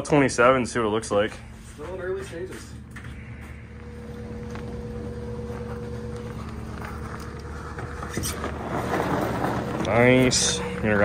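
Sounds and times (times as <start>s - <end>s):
steady low hum: 0.0s - 11.0s
footsteps: 1.1s - 11.0s
knobby tyres rolling: 3.8s - 11.0s.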